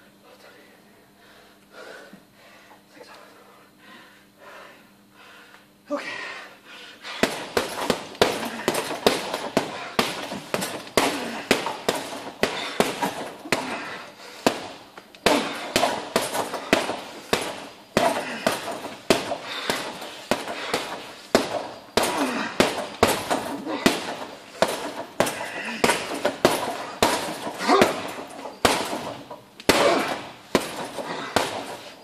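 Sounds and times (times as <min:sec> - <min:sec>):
gloves punching heavy bag: 0:07.0 - 0:32.0.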